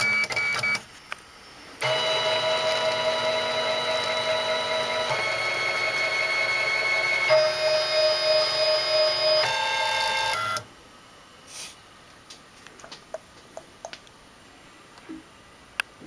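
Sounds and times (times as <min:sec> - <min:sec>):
printer stepper motors whining: 0:00.0 - 0:10.7.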